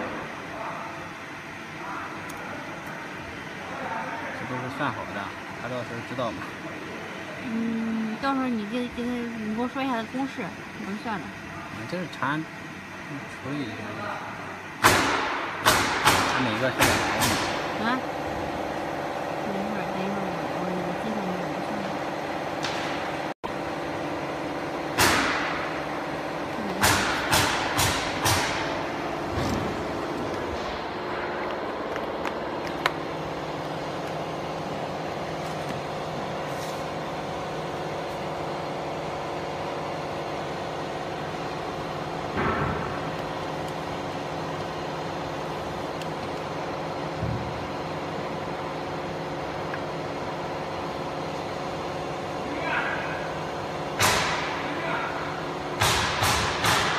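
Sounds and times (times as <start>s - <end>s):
machine hum with fixed tones: 0.0s - 56.9s
sharp knocks: 55.8s - 56.9s.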